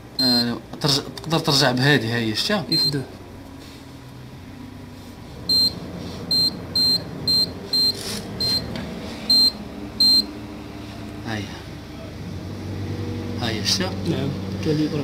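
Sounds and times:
short high-pitched keypad beeps: 0:05.5 - 0:08.7, 0:09.3 - 0:10.2.

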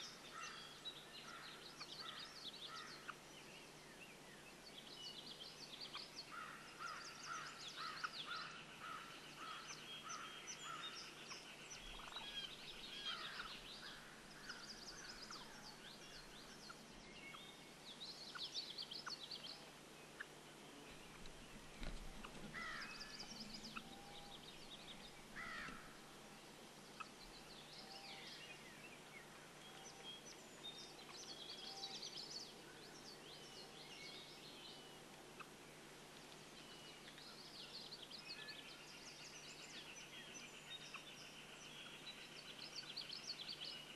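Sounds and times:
faint bird chirps and whistles: 0:21.8 - 0:25.1, 0:29.6 - 0:34.9.

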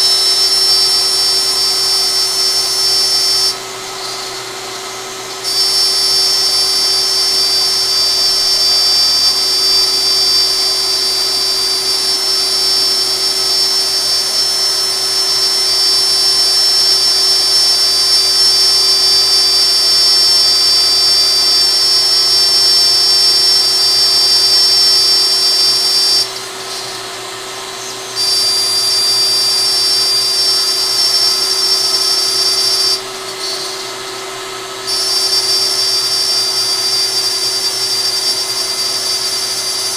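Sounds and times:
cnc milling noise: 0:00.0 - 0:39.9
router spindle high whine: 0:00.0 - 0:39.9.

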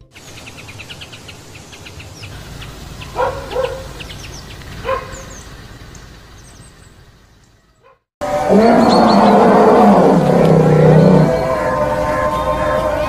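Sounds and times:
small birds chirping: 0:00.0 - 0:13.0
dog barking: 0:03.1 - 0:04.0, 0:04.8 - 0:05.3, 0:07.8 - 0:08.0.

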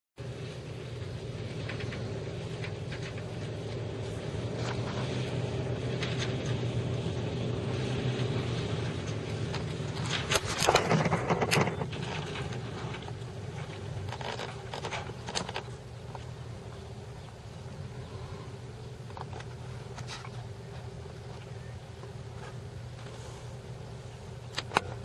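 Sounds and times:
pickup truck engine running: 0:00.2 - 0:25.0.

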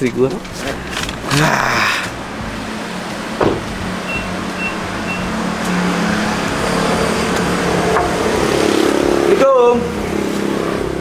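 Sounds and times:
vehicle engine humming: 0:00.0 - 0:11.0
short high beeps: 0:04.1 - 0:05.3.

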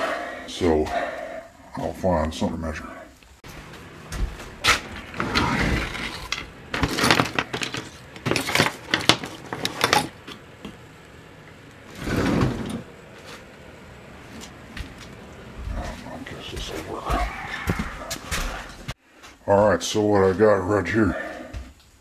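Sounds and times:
household objects clattering: 0:04.6 - 0:10.5.

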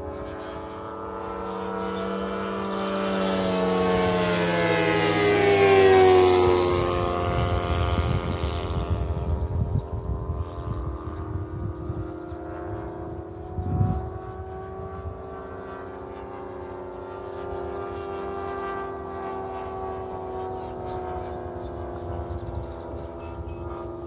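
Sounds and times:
wind buffeting microphone: 0:00.0 - 0:18.6, 0:19.3 - 0:24.0
model plane engine flying by: 0:00.0 - 0:24.0.

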